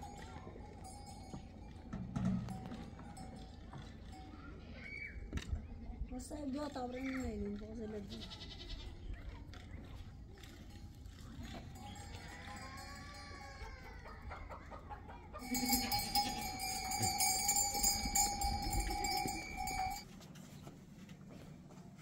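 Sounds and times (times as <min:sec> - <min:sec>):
metallic ringing with jingling: 0:00.0 - 0:05.2, 0:11.3 - 0:14.5, 0:15.3 - 0:20.1
goats calling: 0:11.8 - 0:20.0.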